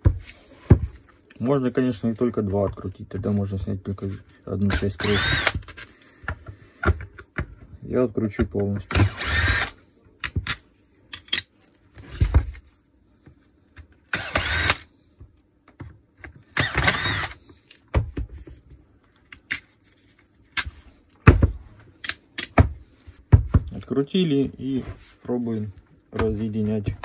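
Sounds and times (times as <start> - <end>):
power screwdriver whining: 5.0 - 5.7, 9.0 - 9.8, 14.1 - 14.8, 16.6 - 17.4.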